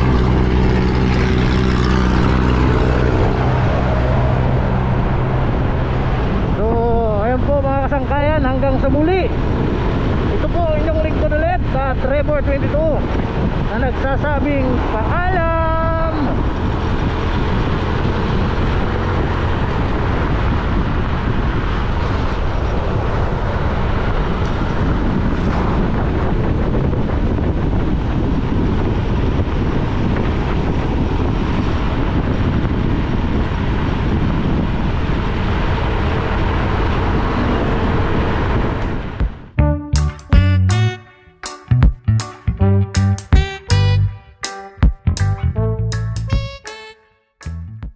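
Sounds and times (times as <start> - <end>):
motorcycle engine cruising: 0.0 - 8.2, 14.6 - 40.7
wind and road noise: 0.0 - 46.7.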